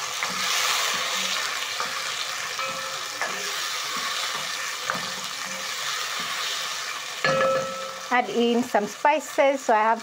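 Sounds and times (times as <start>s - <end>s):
vegetables sizzling in hot oil: 0.0s - 10.0s.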